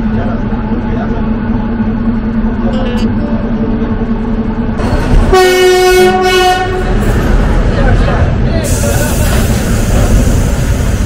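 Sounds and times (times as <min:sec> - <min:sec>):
train interior low hum: 0:00.0 - 0:11.0
train horn: 0:05.3 - 0:07.0.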